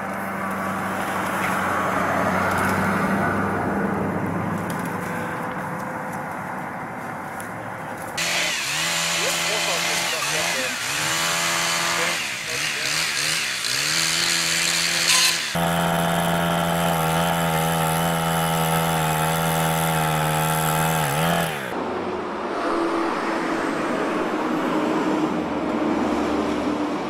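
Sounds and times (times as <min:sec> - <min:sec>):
vehicles driving past: 0:00.0 - 0:18.4, 0:20.5 - 0:27.0
chainsaws idling and revving: 0:08.2 - 0:21.8.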